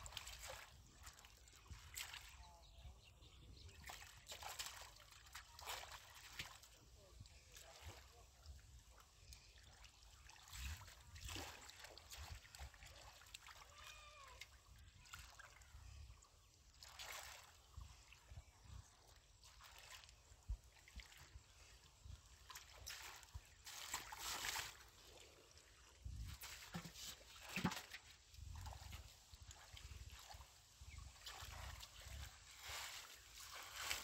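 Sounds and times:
splashing in muddy water: 0.0s - 2.8s, 3.4s - 34.0s.

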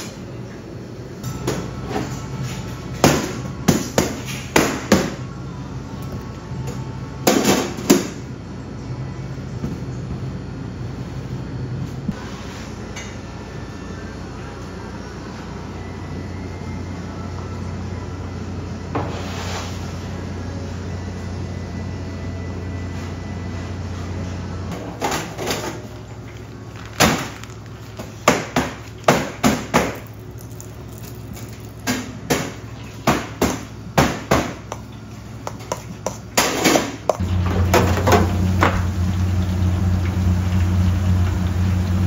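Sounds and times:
low machine hum: 0.0s - 42.0s.

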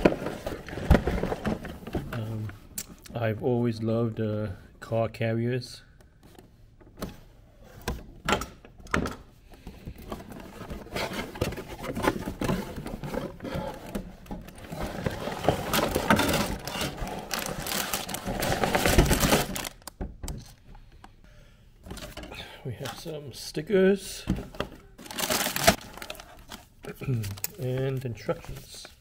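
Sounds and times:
cardboard and plastic bags crinkling: 0.0s - 2.4s, 10.0s - 20.5s, 24.9s - 29.0s.

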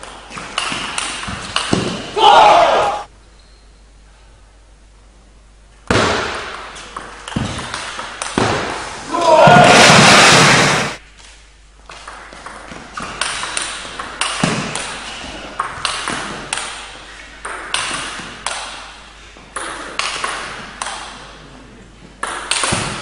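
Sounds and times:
table tennis ball hits: 0.3s - 2.2s, 5.9s - 10.2s, 12.0s - 16.8s, 17.4s - 18.9s, 19.5s - 21.3s, 22.2s - 23.0s.

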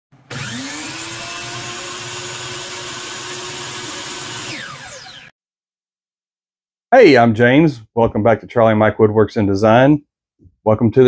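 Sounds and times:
miter saw whining and winding down: 0.3s - 5.4s.

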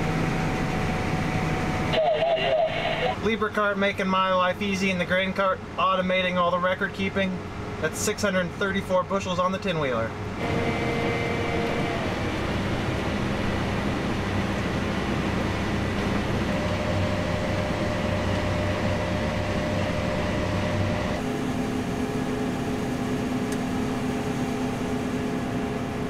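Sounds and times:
tractor engine droning: 0.0s - 26.0s
whining tones: 10.4s - 21.2s.

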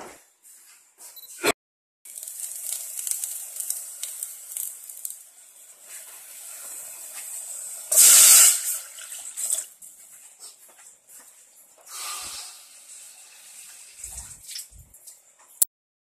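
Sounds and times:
oil sizzling in a pot: 2.0s - 10.0s, 11.8s - 14.4s
water hissing in hot pot: 2.1s - 9.6s, 11.9s - 14.9s.

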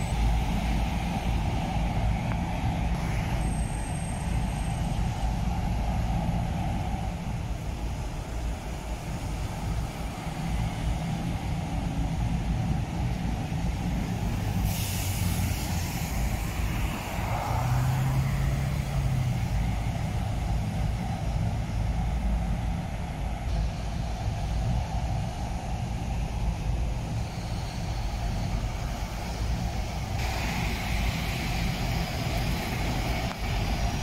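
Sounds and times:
bus engine rumble: 0.0s - 34.0s
air brake hiss: 2.9s - 5.1s, 14.4s - 18.2s, 27.1s - 33.2s.

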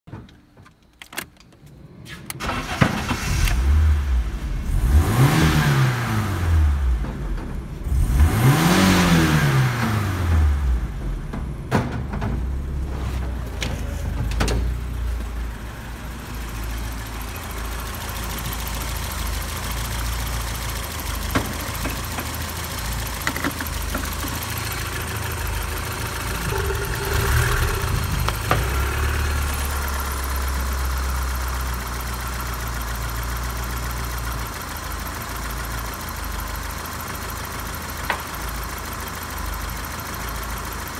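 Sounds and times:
car engine starting and revving: 1.8s - 11.7s, 12.4s - 35.2s.

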